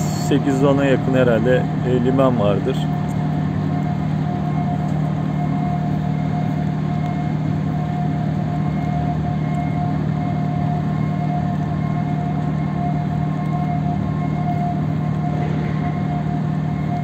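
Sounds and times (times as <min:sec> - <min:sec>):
heavy engines droning: 0:00.0 - 0:08.0, 0:11.8 - 0:17.0.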